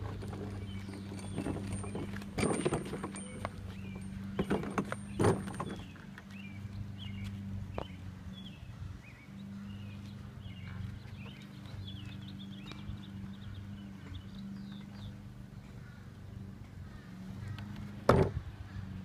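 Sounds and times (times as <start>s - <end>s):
wagon knocking: 0.0s - 5.9s
wagon wheels clattering: 0.0s - 7.2s.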